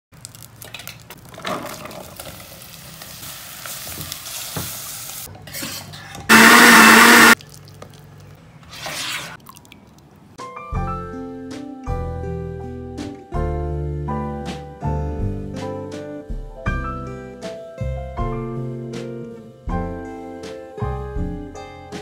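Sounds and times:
butter and oil sizzling: 1.9s - 5.3s, 6.3s - 7.4s
hand blender motor hum: 6.3s - 7.4s.

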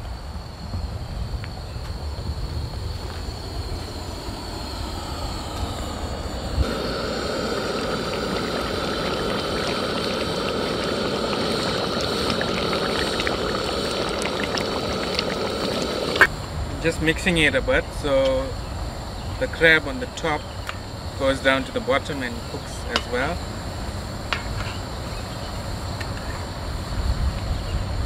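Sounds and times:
steady low rumble: 0.0s - 19.5s
curry bubbling in a pot: 6.6s - 16.3s.

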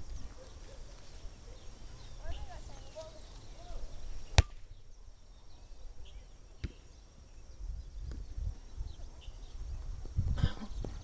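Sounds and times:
faint bird chirps: 0.1s - 10.9s.

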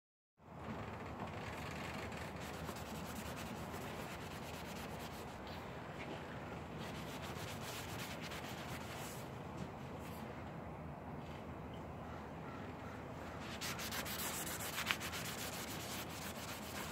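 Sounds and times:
cloth rag rubbing concrete: 2.3s - 5.5s, 6.8s - 9.3s, 13.4s - 16.9s.

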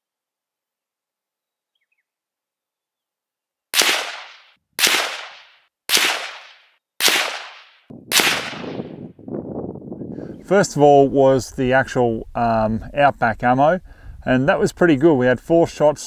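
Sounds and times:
rifle shots cracking: 3.8s - 9.0s.

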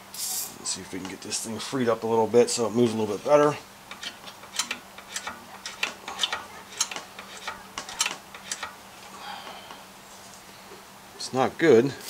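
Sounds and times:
metal throttle linkage clicking: 3.9s - 8.8s.

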